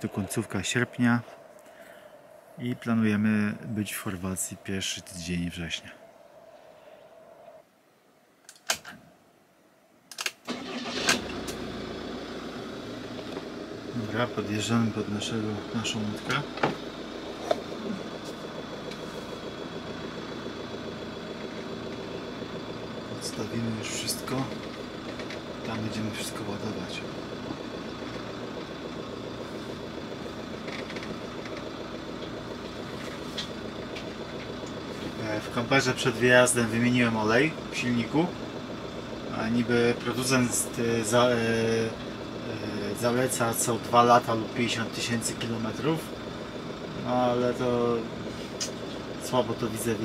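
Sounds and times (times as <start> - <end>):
clicks: 8.4 - 9.0
engine cranking and idling: 10.1 - 50.0.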